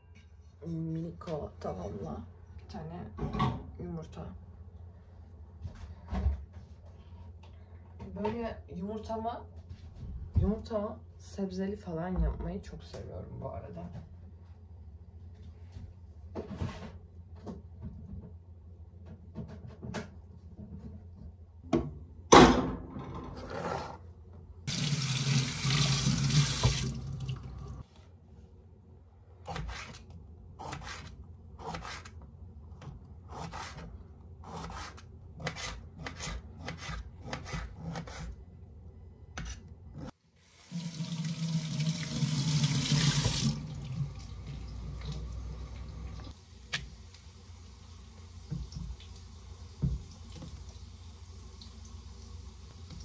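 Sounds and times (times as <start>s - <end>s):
kitchen tap running: 24.7s - 27.8s, 40.4s - 53.0s.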